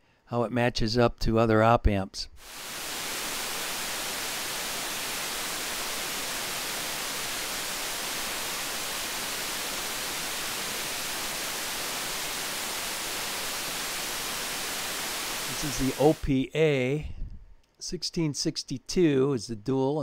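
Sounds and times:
steady electronic hiss: 2.4 - 17.0.

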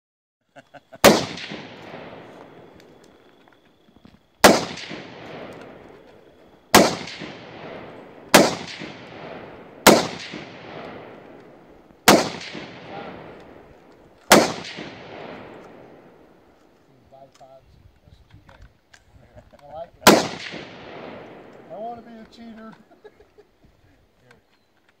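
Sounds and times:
rifle shots echoing: 1.0 - 3.7, 4.4 - 16.6, 20.0 - 22.2.

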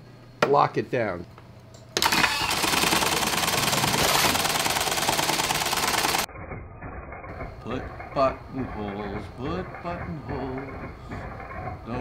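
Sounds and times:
quieter machine sound: 0.0 - 12.0
buttonhole machine stitching: 2.0 - 6.3.

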